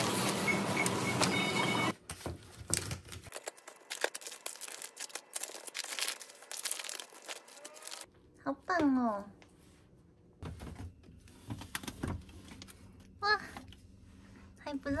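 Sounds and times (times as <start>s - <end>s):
crinkling and rustling handling: 2.0s - 8.1s.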